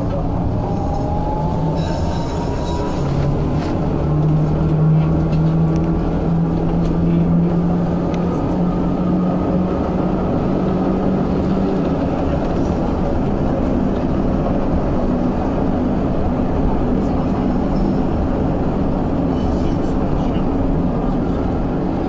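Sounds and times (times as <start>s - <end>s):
tram wheels rumbling on rails: 0.0s - 22.0s.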